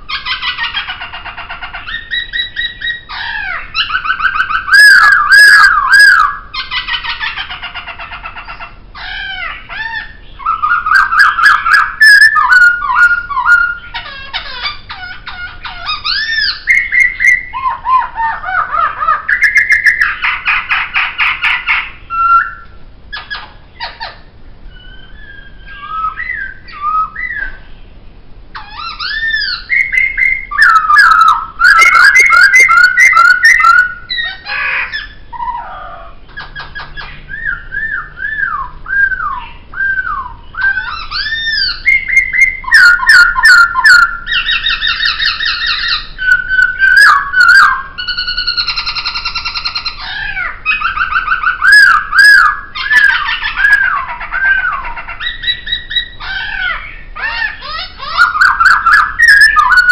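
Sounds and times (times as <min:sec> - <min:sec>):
bird singing whistled song: 0:00.1 - 0:07.4, 0:08.5 - 0:27.8, 0:28.6 - 0:59.9
harsh rattling bird notes: 0:28.5 - 0:59.9.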